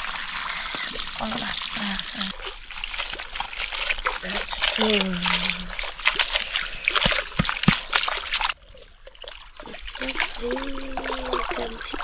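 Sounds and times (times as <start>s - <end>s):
water splashing and trickling: 0.0s - 12.0s
person speaking: 4.2s - 5.7s, 10.0s - 12.0s.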